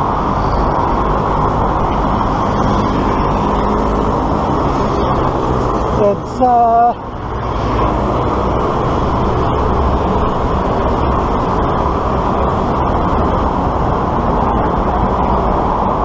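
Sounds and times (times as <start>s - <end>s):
motor traffic: 0.0s - 16.0s.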